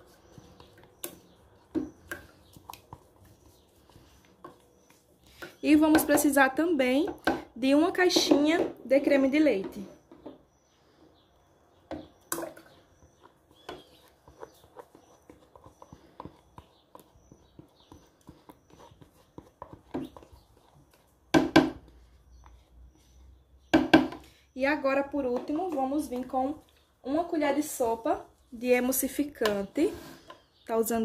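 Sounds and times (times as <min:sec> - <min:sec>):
spatula scraping plastic container: 0:00.0 - 0:06.4, 0:12.4 - 0:21.1
spatula knocking on plastic: 0:21.3 - 0:21.9.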